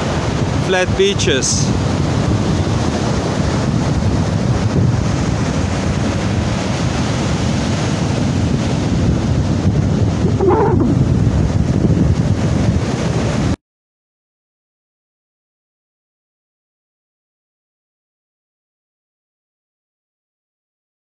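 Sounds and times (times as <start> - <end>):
surf breaking on beach: 0.0 - 13.6
wind buffeting microphone: 0.0 - 13.6.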